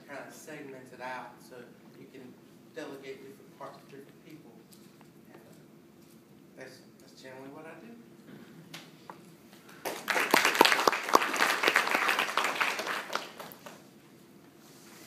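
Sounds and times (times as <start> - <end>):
audience applauding: 9.8 - 13.9.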